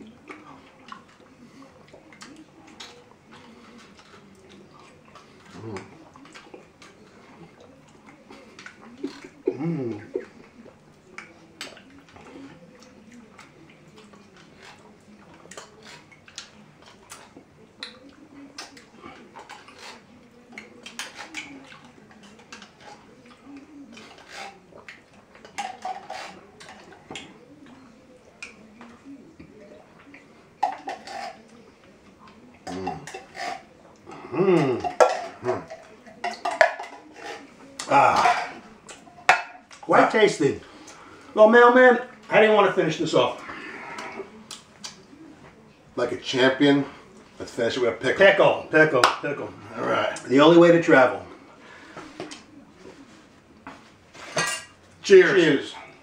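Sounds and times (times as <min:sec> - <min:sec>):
wordless vocal noises: 0:00.0 - 0:25.1, 0:26.0 - 0:39.1, 0:39.8 - 0:53.4
eating noises: 0:00.0 - 0:56.0
spoons scraping tin cans: 0:25.4 - 0:27.0, 0:30.6 - 0:31.5, 0:32.6 - 0:33.7, 0:34.7 - 0:40.2.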